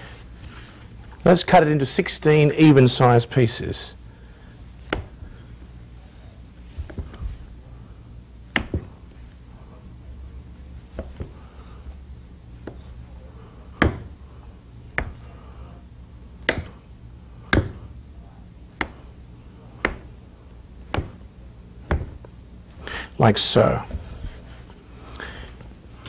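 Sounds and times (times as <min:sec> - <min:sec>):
knife chopping on cutting board: 0:04.9 - 0:05.2, 0:08.5 - 0:08.9, 0:11.0 - 0:11.4, 0:13.8 - 0:14.2, 0:15.0 - 0:15.2, 0:16.4 - 0:16.8, 0:17.5 - 0:17.9, 0:19.8 - 0:20.2, 0:20.9 - 0:21.2, 0:21.9 - 0:22.2.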